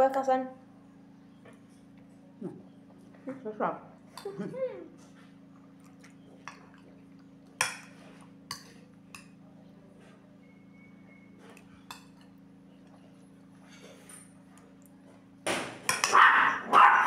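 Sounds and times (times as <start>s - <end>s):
fork clinking against ceramic bowl: 11.8s - 12.4s.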